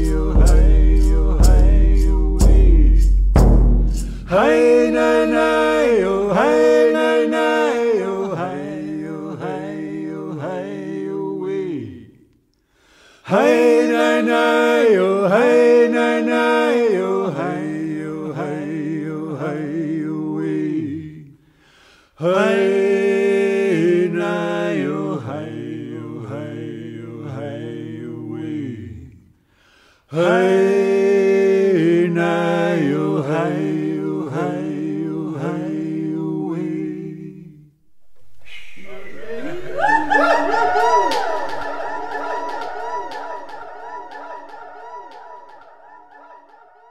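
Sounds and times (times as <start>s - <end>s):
man singing unaccompanied chant: 0.0s - 3.1s, 4.3s - 12.2s.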